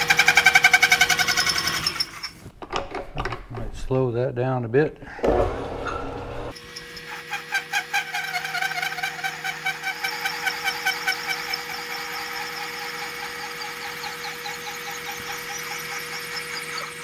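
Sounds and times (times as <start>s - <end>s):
lathe running hum: 5.2s - 17.0s
parting tool squealing on metal: 5.8s - 17.0s.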